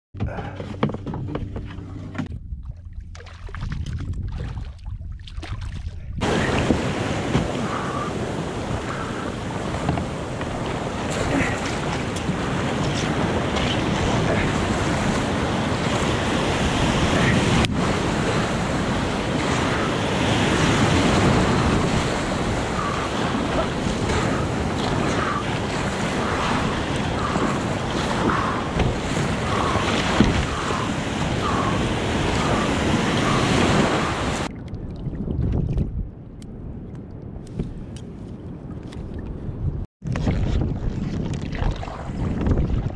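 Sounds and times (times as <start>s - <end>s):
wind buffeting microphone: 2.2s - 42.9s
surf and white water rushing: 6.2s - 34.5s.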